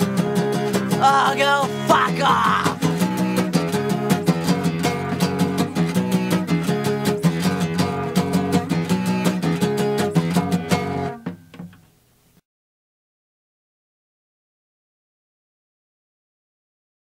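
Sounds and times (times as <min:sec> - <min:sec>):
guitar strummed: 0:00.0 - 0:12.2.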